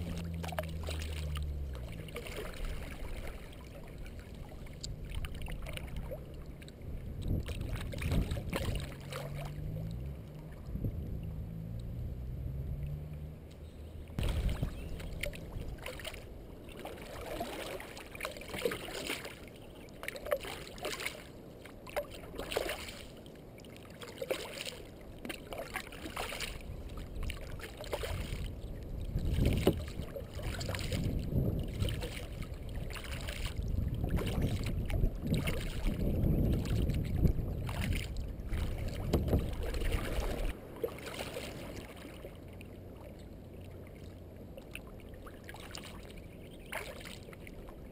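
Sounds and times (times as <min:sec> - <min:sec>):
kayak paddle splashing in water: 0:00.0 - 0:10.8, 0:14.1 - 0:47.9
wind rumble on microphone: 0:00.0 - 0:18.0, 0:26.0 - 0:47.9.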